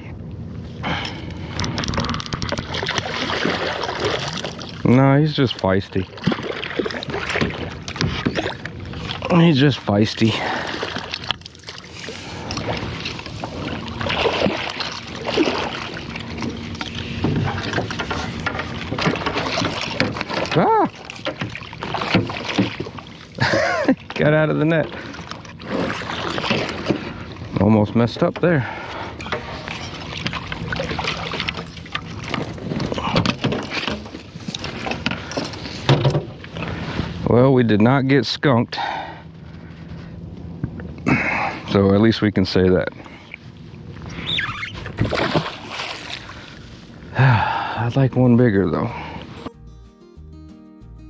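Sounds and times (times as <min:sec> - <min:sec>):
water splashing: 0:01.4 - 0:27.6, 0:28.8 - 0:35.8, 0:44.0 - 0:46.8
fish splashing in water: 0:02.5 - 0:04.8, 0:10.4 - 0:23.3, 0:44.1 - 0:46.6
knocks against boat: 0:35.0 - 0:36.4.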